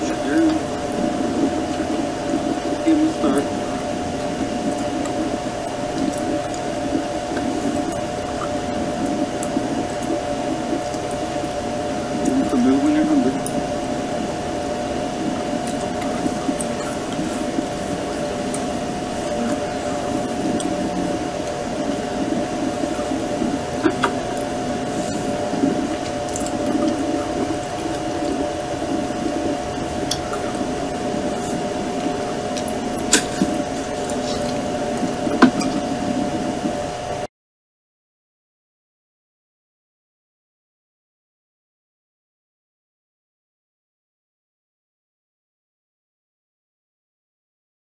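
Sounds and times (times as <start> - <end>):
honeybees buzzing: 0.0 - 36.8.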